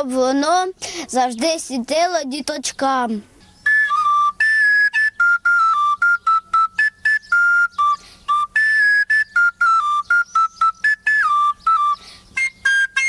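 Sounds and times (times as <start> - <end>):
wooden flute playing: 3.4 - 13.0.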